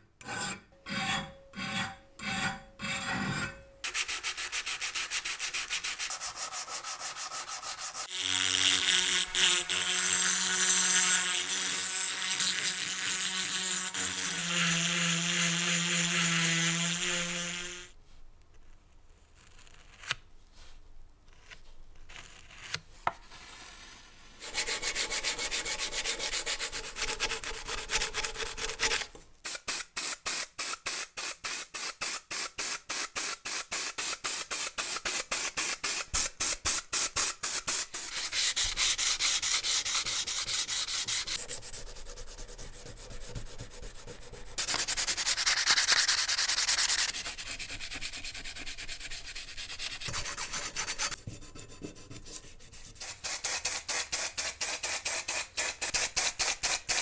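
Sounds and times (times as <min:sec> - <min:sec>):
sandpaper rubbing on metal: 0:03.9 - 0:08.1, 0:24.4 - 0:29.1, 0:33.5 - 0:57.0
steady rubbing on metal: 0:37.9 - 0:53.1.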